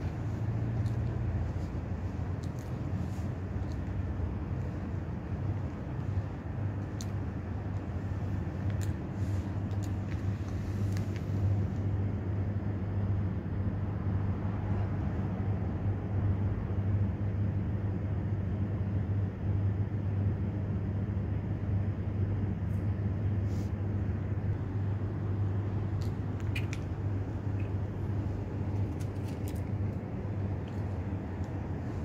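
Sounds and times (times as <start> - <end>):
higher hum: 0.0 - 8.4
low machine hum: 0.0 - 32.0.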